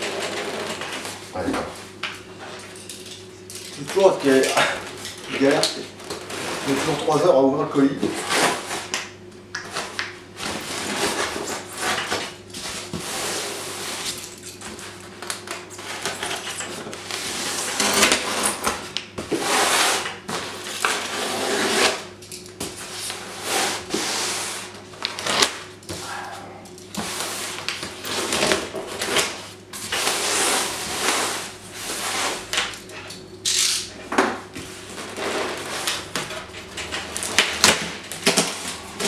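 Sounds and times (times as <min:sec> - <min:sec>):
scratching and scraping foam: 0:06.3 - 0:07.3, 0:12.9 - 0:14.2, 0:19.3 - 0:22.1, 0:27.1 - 0:32.5.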